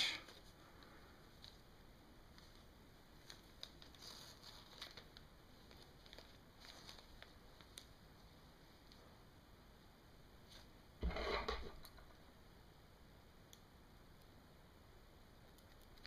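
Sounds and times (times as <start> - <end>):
faint rustles and ticks: 0.3 - 8.0.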